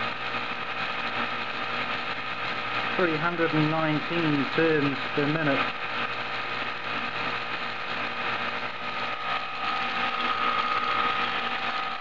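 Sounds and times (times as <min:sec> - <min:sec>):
motor whirring with high whine: 0:00.0 - 0:12.0.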